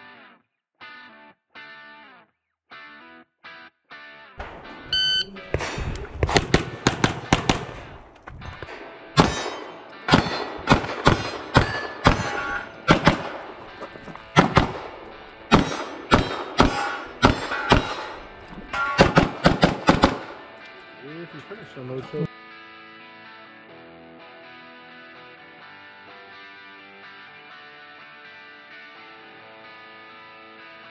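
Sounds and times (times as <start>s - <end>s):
pistol shots: 4.4s - 20.6s
shot timer beep: 4.9s - 5.4s.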